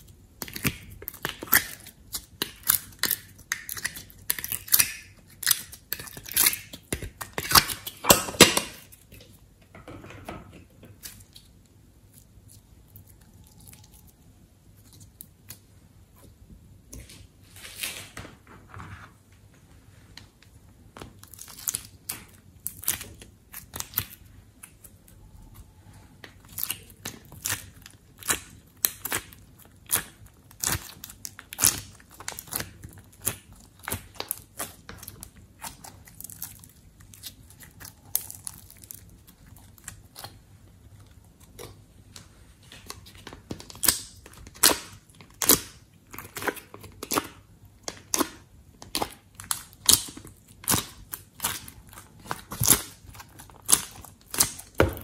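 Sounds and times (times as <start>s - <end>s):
sticky slime crackles and pops: 0.0s - 9.0s, 21.0s - 25.2s, 26.2s - 40.4s, 42.8s - 55.0s.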